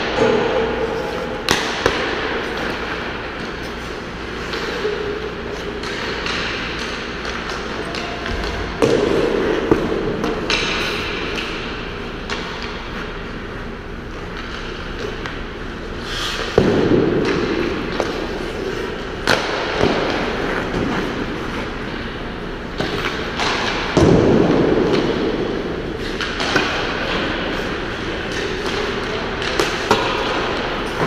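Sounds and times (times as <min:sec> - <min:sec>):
sticks and pucks clacking: 0:00.0 - 0:13.2, 0:16.2 - 0:22.1, 0:22.8 - 0:31.0
skates scraping ice: 0:00.8 - 0:08.1, 0:15.9 - 0:22.1
pucks striking boards and glass: 0:26.1 - 0:31.0.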